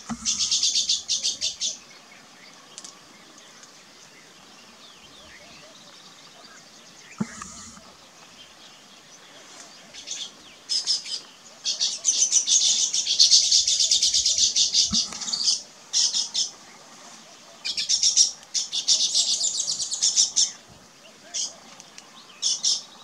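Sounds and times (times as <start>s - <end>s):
bird chattering song: 0.0s - 1.9s, 10.0s - 16.5s.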